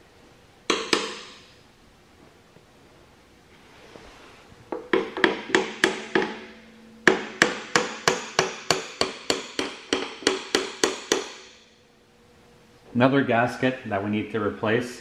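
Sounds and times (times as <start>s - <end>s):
hammer striking metal wrench: 0.7s - 1.5s, 4.9s - 11.8s.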